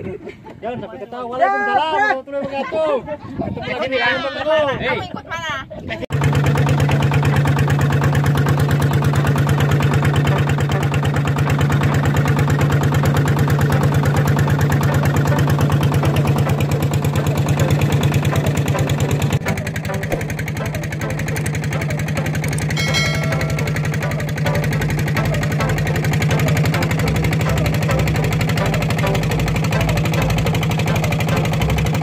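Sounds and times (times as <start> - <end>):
boat engine puttering: 6.1 - 32.0.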